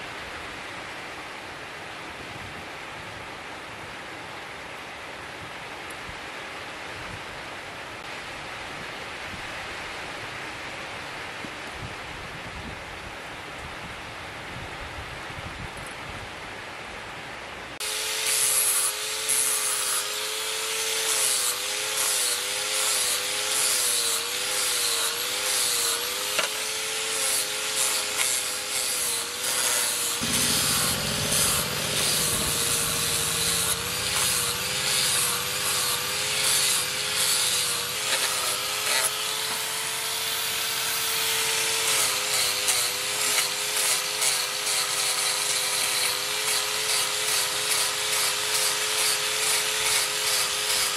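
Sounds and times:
angle grinder grinding steel: 0:17.8 - 0:50.9.

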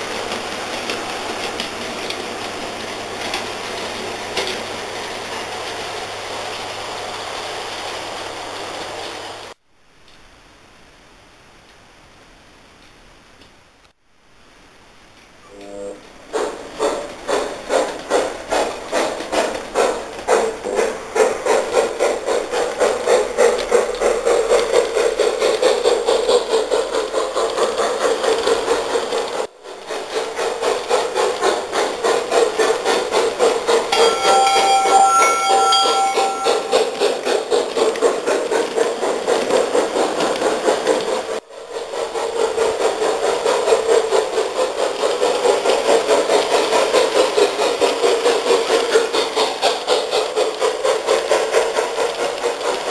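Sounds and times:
model train wheels clicking: 0:00.0 - 0:07.1, 0:16.3 - 0:34.3, 0:36.4 - 0:52.9
steady high tone: 0:33.9 - 0:37.3.

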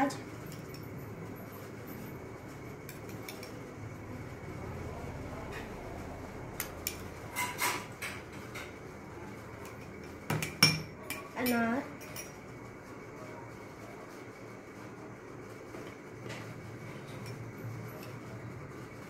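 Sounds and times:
metal spoon clinking glass bowls: 0:00.4 - 0:02.1, 0:02.8 - 0:03.7, 0:06.6 - 0:08.8, 0:09.6 - 0:12.4, 0:17.1 - 0:18.3.

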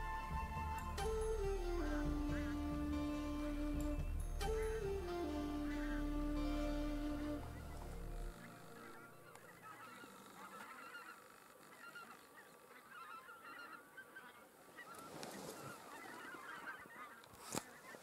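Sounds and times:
geese honking in flight: 0:04.5 - 0:18.0.

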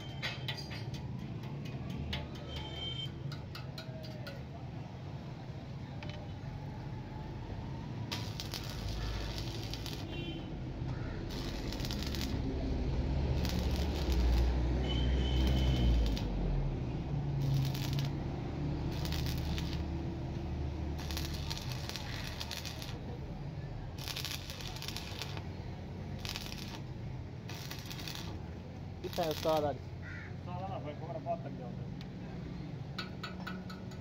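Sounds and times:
welding arc crackling: 0:08.0 - 0:16.5, 0:17.2 - 0:23.2, 0:23.9 - 0:29.8.

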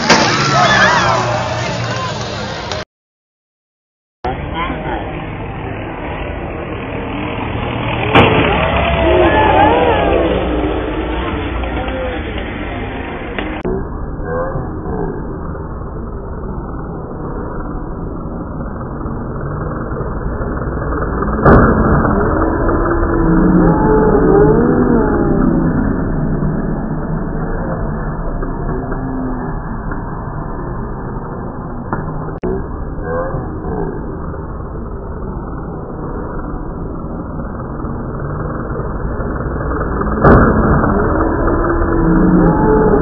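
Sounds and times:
propeller plane engine drone: 0:04.3 - 0:43.0
propeller plane flying low: 0:04.6 - 0:13.3.

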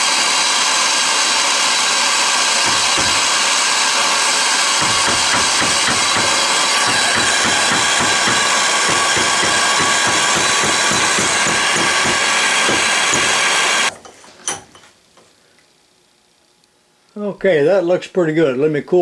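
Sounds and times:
torch flame hissing: 0:00.0 - 0:13.9.

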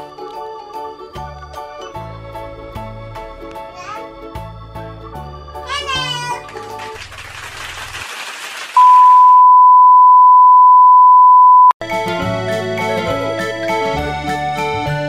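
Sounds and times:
bright keyboard music: 0:00.0 - 0:07.2, 0:11.8 - 0:15.0.

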